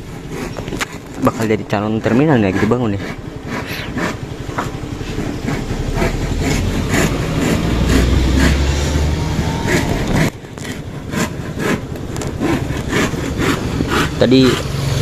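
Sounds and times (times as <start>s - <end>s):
short rhythmic strokes: 2.1s - 14.7s
heavy vehicle engine rumbling past: 3.1s - 11.0s.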